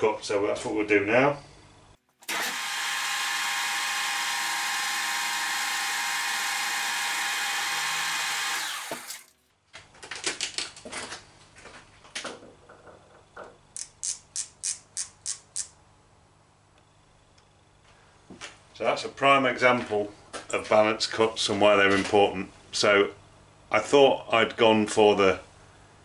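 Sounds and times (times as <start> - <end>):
metal lathe running: 2.2 - 9.2
micrometer ratchet clicking: 13.8 - 15.8.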